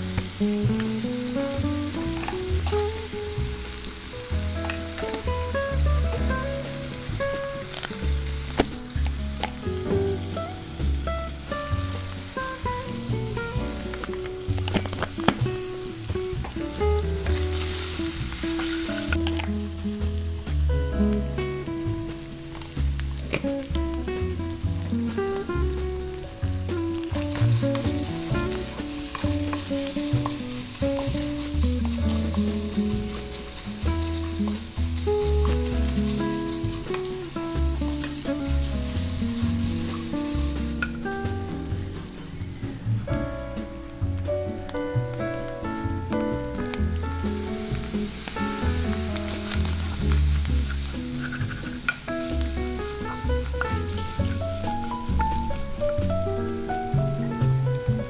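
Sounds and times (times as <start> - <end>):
background music: 0.0 - 58.0
food sizzling in a pan: 0.0 - 58.0
wooden spatula scraping: 47.3 - 55.8.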